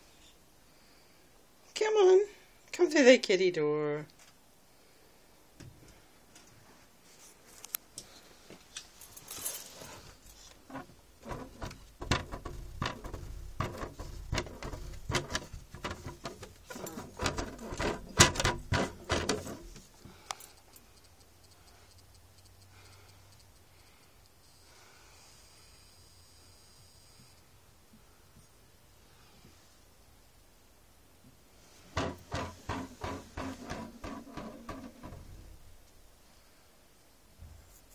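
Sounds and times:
plastic cat flap clattering: 10.7 - 19.9, 31.9 - 35.6.

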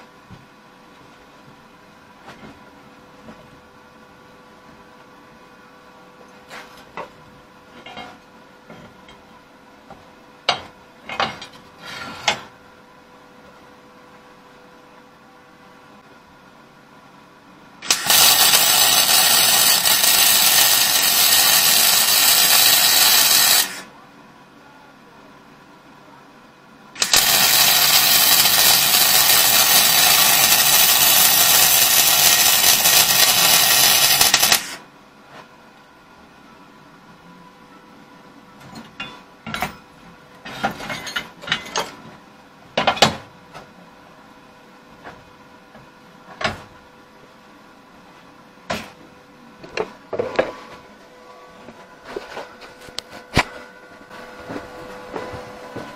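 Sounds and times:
welder arc crackling sizzle: 17.8 - 23.9, 27.0 - 34.8.

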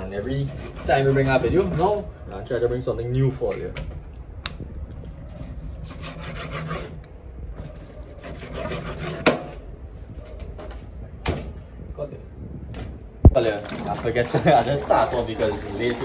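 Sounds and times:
knife sawing through meat: 0.3 - 2.0.

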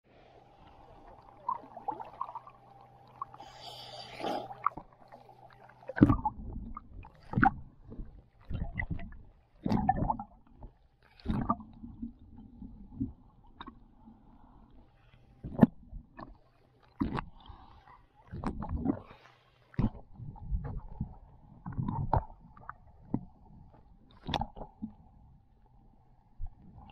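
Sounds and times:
steady low hum: 0.1 - 9.5
water splashing over camera: 1.1 - 12.0
muffled underwater gurgling thumps: 4.2 - 13.9, 15.4 - 16.4, 17.0 - 17.4, 18.3 - 19.1, 19.7 - 25.0.

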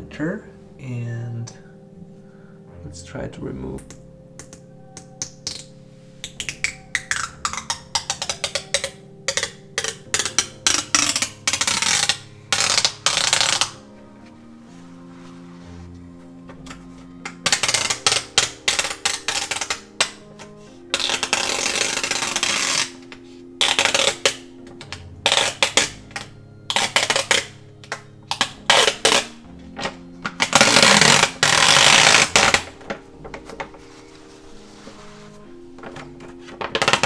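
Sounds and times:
paper towels crinkling: 30.3 - 37.0.

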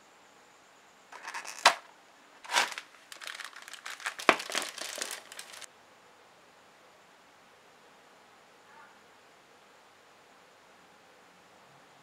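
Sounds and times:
cardboard packaging crinkling: 1.2 - 5.7.

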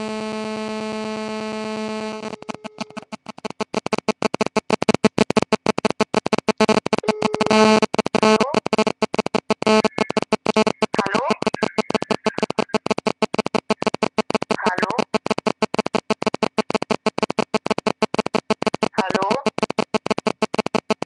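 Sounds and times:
steady electronic phone tone: 0.6 - 3.1, 6.5 - 9.0, 9.6 - 12.9
chopped stuttering electronic sound: 2.2 - 21.0.

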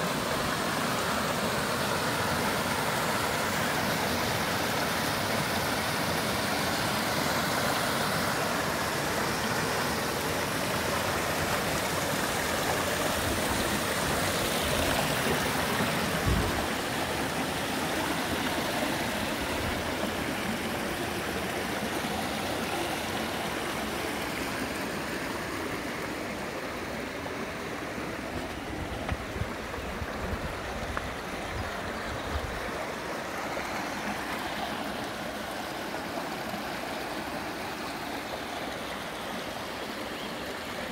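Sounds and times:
creek water rushing over cascades: 0.0 - 40.9.

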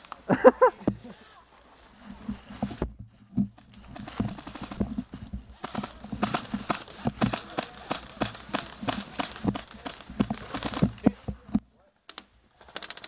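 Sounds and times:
footsteps crunching dry leaves: 3.6 - 11.2.

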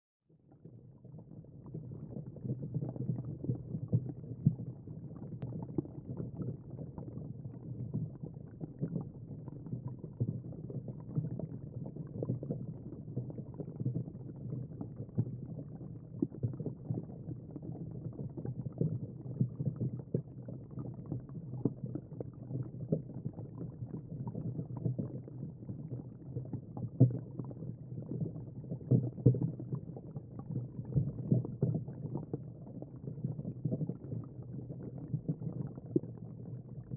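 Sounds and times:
muffled underwater rumble: 0.4 - 36.9
underwater crackles and knocks: 0.6 - 36.9.

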